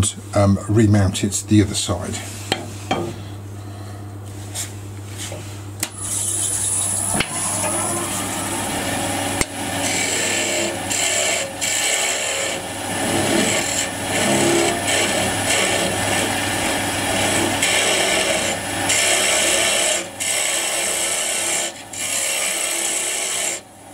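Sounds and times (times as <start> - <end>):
tool scraping spinning wood: 4.6 - 23.7
lathe motor whine: 5.8 - 23.9.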